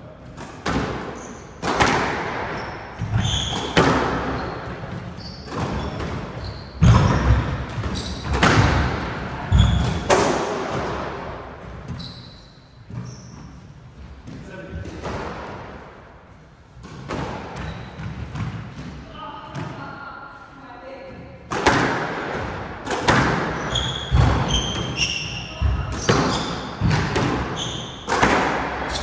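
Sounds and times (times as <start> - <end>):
squash ball hits echoing: 0.3 - 12.0, 16.8 - 19.9, 21.4 - 29.0
shoes squeaking on wooden floor: 2.5 - 8.8, 9.5 - 10.1, 11.8 - 13.6, 23.4 - 28.1.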